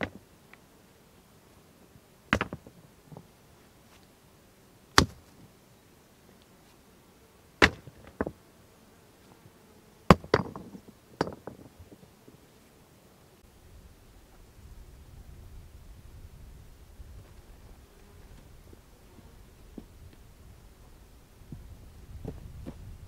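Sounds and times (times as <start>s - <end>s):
stones knocking together: 10.1s - 11.9s.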